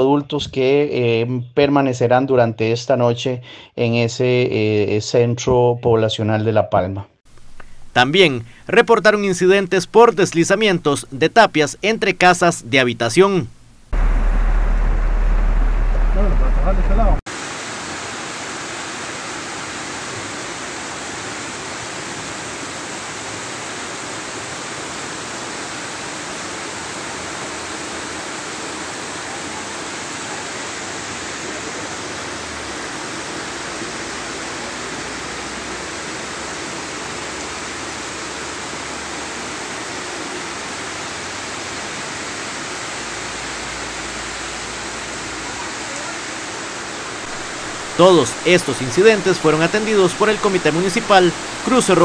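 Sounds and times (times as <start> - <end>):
floodwater running over street: 14.0 - 52.0
heavy rain: 14.0 - 52.0.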